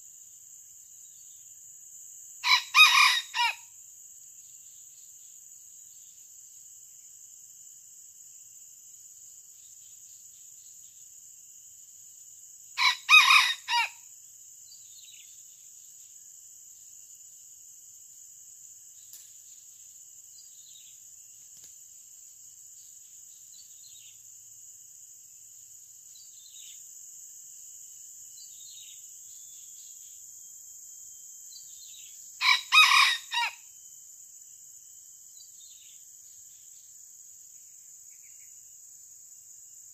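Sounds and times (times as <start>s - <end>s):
high-pitched insect drone: 0.0s - 39.9s
rooster crowing: 2.4s - 3.6s, 12.8s - 14.0s, 32.4s - 33.6s.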